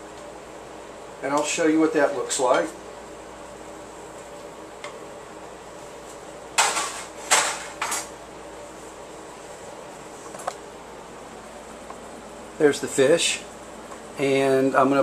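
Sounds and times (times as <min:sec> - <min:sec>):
faint background hum: 0:00.0 - 0:15.0
utensils clattering on countertop: 0:06.6 - 0:08.1.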